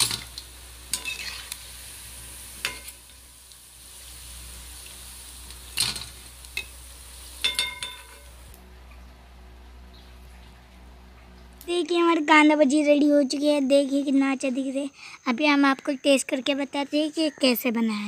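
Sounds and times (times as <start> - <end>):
fritters sizzling in hot oil: 0.0 - 8.6
metal spoon scraping pan: 0.9 - 1.6.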